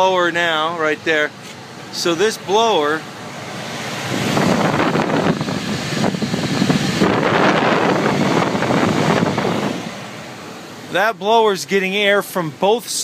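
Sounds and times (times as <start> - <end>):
furnace blower rushing air: 1.3 - 11.1.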